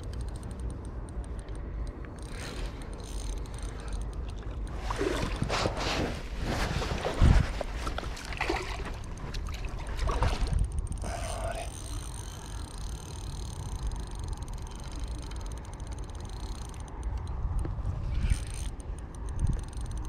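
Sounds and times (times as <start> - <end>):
wind rumbling on microphone: 0.0 - 20.0
spinning reel whirring: 2.2 - 4.8, 10.5 - 17.3, 18.2 - 20.0
water splashes and knocks: 4.8 - 10.6.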